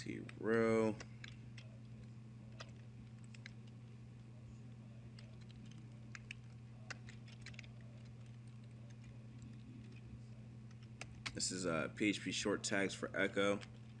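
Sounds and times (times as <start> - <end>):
keyboard typing: 0.0 - 3.9, 5.1 - 10.0, 10.7 - 11.4
low electrical hum: 0.0 - 14.0.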